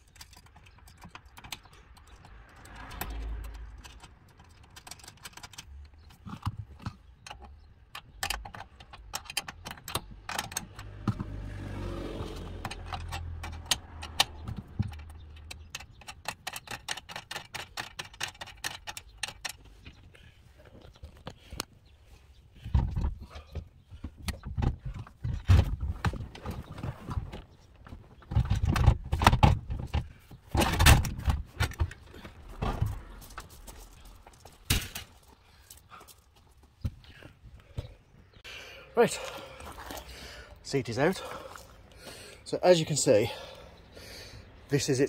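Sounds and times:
metal seat hardware clicking: 0.0 - 11.3, 12.2 - 20.0.

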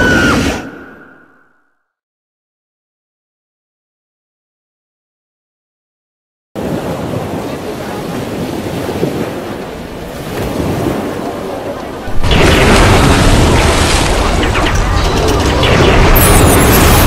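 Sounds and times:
surf washing: 6.6 - 15.0
water crashing and splashing: 6.6 - 17.0.

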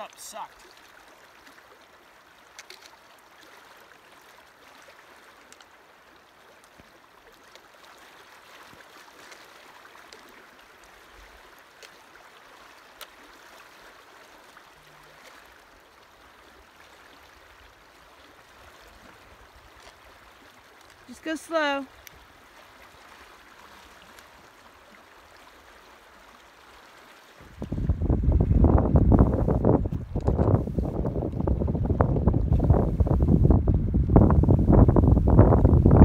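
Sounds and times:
river flowing over gravel: 0.0 - 36.0
small clicks: 2.5 - 3.0.

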